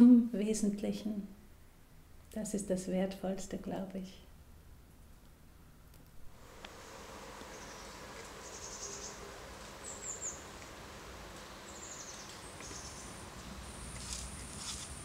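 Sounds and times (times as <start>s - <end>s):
high insect trill: 6.4s - 15.0s
bird chirps: 7.5s - 10.5s, 11.6s - 13.2s.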